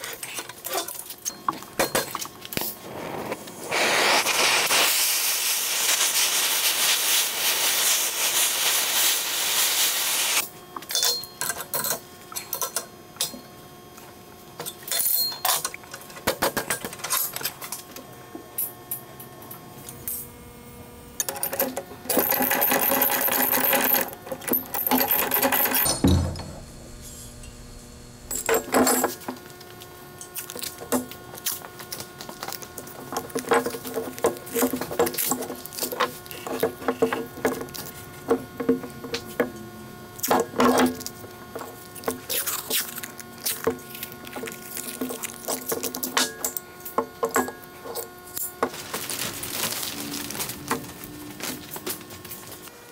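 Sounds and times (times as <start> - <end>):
torch flame hissing: 2.6 - 10.4.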